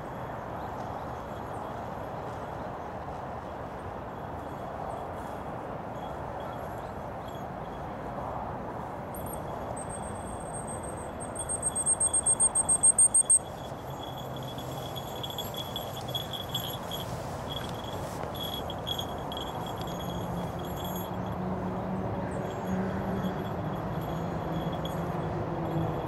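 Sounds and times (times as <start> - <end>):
outdoor background noise: 0.0 - 26.0
faint steady ringing: 3.4 - 26.0
small bell jingling: 9.1 - 26.0.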